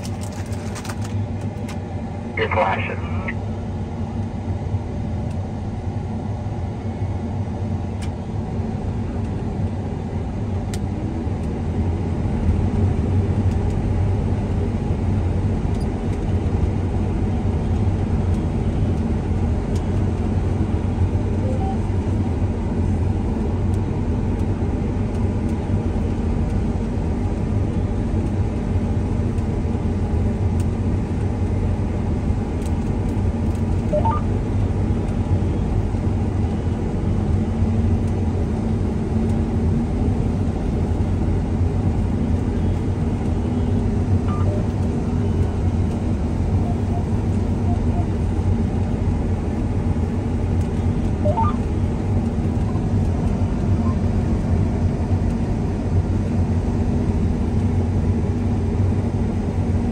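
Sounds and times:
combine harvester drone: 0.0s - 59.9s.

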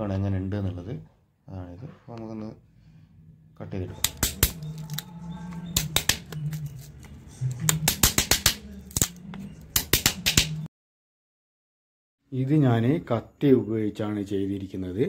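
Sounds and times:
hammer striking steel blade: 4.0s - 5.0s.

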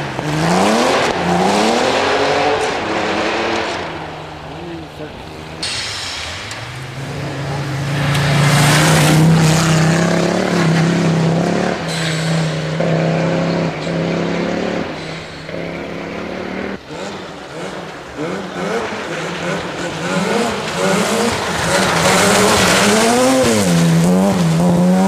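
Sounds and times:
rally car engine at high revs: 0.0s - 25.0s
second rally car approaching: 6.5s - 25.0s.

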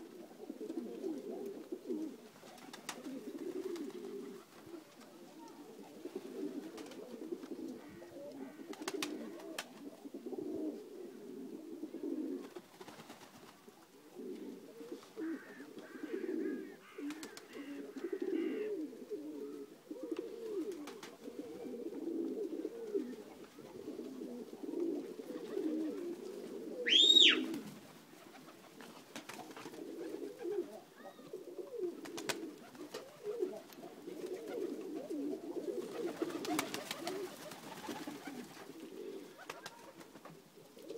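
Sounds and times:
pigeons cooing: 0.0s - 40.9s
high rising and falling whistle: 26.9s - 27.4s.

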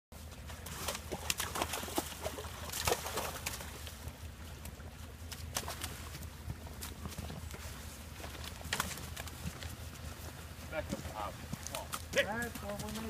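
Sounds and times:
splashing in muddy water: 0.3s - 9.6s.

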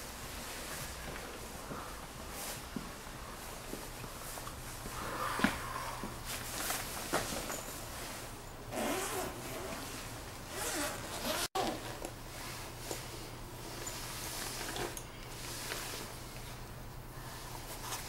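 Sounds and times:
zipper being pulled open: 8.7s - 9.9s, 10.5s - 12.0s.

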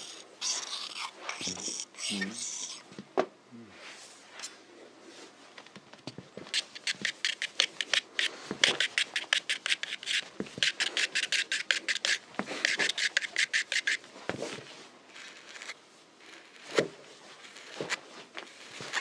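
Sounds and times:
shaving brush scrubbing lather: 8.6s - 14.0s.

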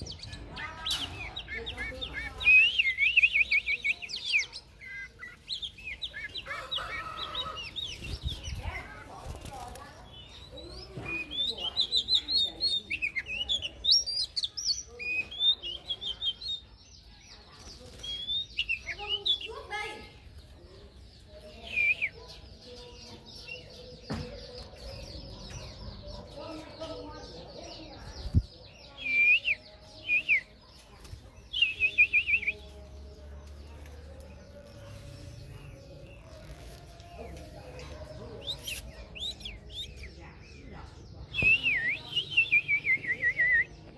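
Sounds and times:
bird singing whistled notes: 0.9s - 6.3s, 21.5s - 22.3s, 28.8s - 30.6s, 31.4s - 32.8s, 38.4s - 40.2s, 41.3s - 43.9s.

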